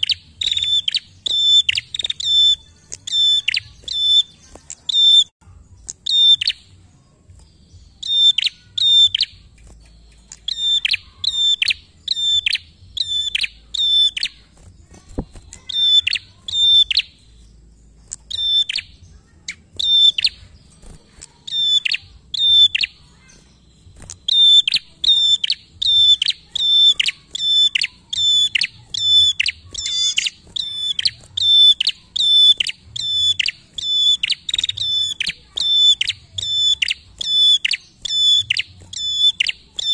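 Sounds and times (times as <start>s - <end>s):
bird chirping: 0.0s - 39.9s.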